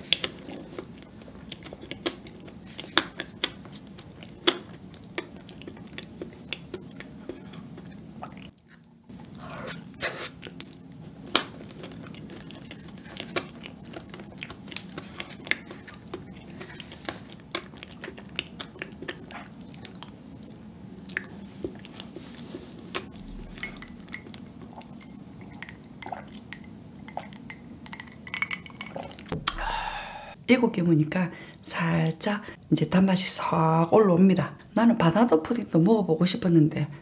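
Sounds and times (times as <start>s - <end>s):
wet chewing and lip smacks: 0.1s - 9.4s, 10.0s - 22.2s.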